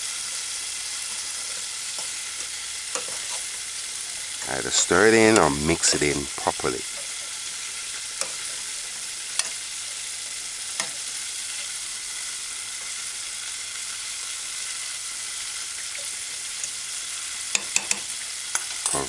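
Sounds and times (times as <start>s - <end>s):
steady high hiss: 0.0s - 19.0s
fork clicking against saucepan: 17.5s - 18.8s.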